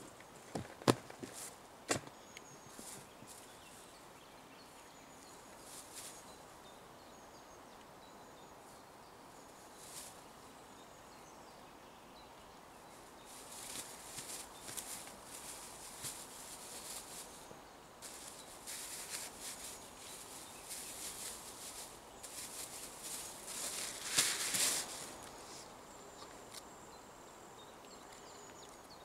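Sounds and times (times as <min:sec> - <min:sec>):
plastic bag rustling: 0:13.3 - 0:17.4, 0:18.0 - 0:25.2.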